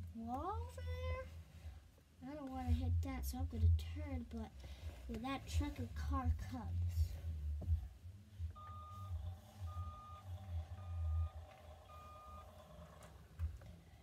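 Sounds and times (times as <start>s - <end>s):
electronic engine hum: 7.3s - 13.8s
toy truck reversing beeps: 8.6s - 13.0s.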